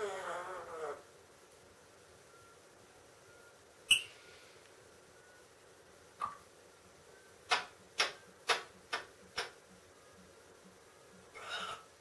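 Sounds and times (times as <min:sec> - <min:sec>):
parrot rasp: 0:11.4 - 0:11.8.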